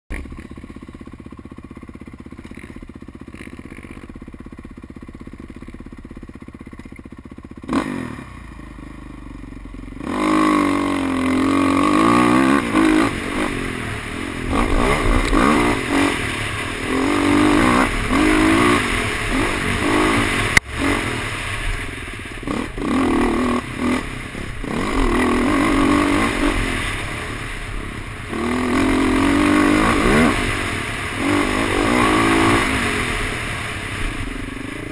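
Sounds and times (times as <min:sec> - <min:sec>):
dirt bike engine revving: 0:07.6 - 0:09.1, 0:09.9 - 0:34.9.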